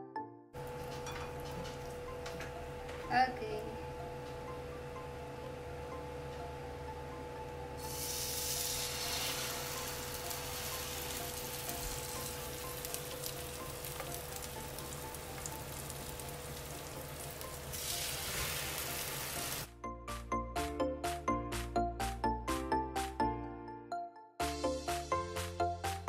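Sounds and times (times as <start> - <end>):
music with a chiming beat: 0.5 - 17.9, 19.7 - 26.0
bread sizzling in a frying pan: 7.8 - 19.7.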